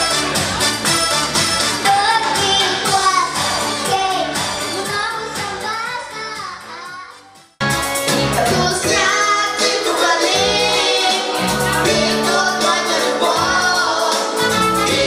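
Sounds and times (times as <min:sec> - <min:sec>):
backing music: 0:00.0 - 0:15.0
boy singing into microphone: 0:01.8 - 0:07.2.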